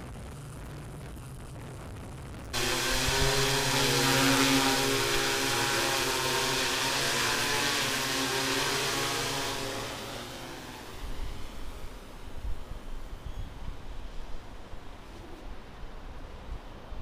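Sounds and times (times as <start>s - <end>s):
drone propellers humming: 2.6s - 13.2s.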